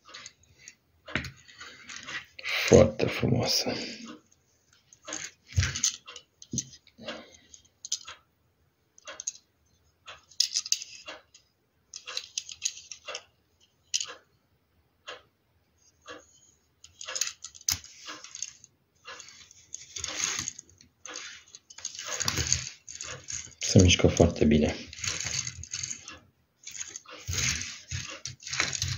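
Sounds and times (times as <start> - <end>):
model car clicks and rattles: 4.8 - 8.2, 9.0 - 9.4, 10.1 - 14.2, 16.1 - 28.9
paper rustling: 26.7 - 28.9.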